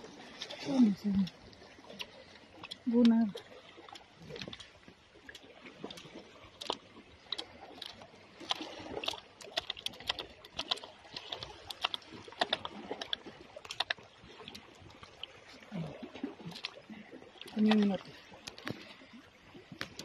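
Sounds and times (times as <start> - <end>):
fish flapping and slapping: 3.7 - 15.5.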